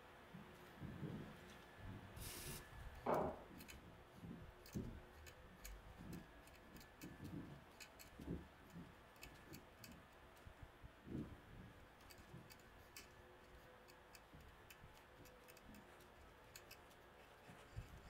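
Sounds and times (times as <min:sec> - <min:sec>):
spray can hiss: 0:02.2 - 0:02.7
knock: 0:03.1 - 0:03.5.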